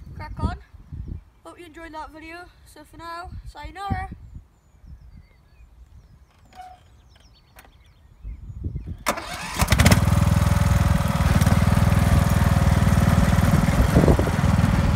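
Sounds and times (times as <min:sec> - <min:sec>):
mower engine cranking and running: 0:09.1 - 0:14.9.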